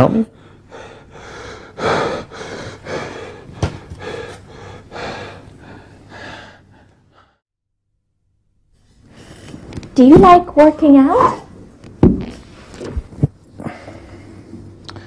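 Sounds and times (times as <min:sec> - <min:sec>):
man breathing hard: 0:00.3 - 0:07.4, 0:13.5 - 0:15.0.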